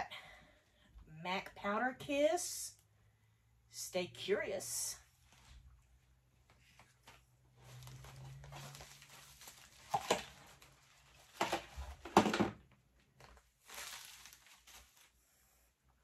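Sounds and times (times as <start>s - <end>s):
plastic mail bag rustling: 7.0s - 12.4s, 13.2s - 15.2s
makeup cases clattering onto table: 11.3s - 12.6s.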